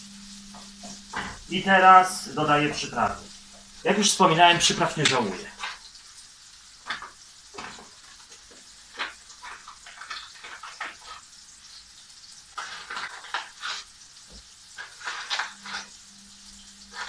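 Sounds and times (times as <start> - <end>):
sausage sizzling in a pan: 0.0 - 17.0.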